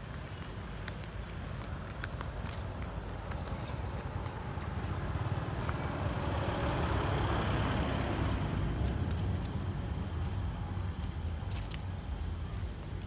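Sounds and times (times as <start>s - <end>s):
vehicle passing: 3.2s - 11.0s.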